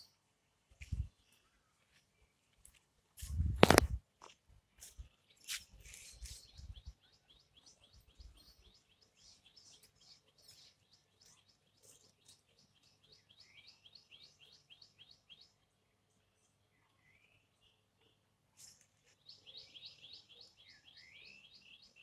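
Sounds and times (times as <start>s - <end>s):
bird chirping: 5.0s - 22.0s.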